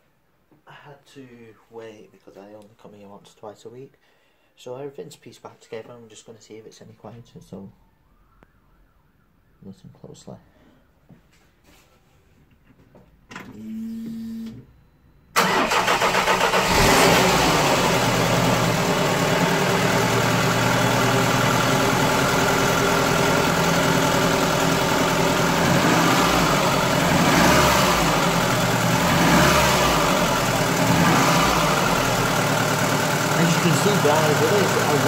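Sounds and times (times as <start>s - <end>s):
engine starter cranking: 15.4s - 17.5s
car engine idling: 15.4s - 35.0s.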